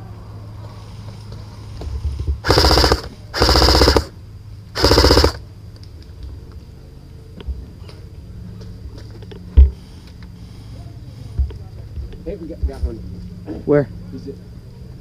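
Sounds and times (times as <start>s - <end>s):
airsoft rifle bursts: 2.4s - 4.1s, 4.8s - 5.4s.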